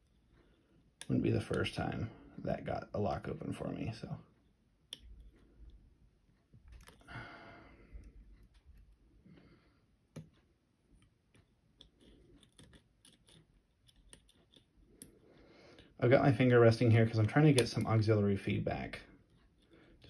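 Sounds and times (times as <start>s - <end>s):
lock pick clicks and scrapes: 6.7s - 7.1s, 11.4s - 15.2s.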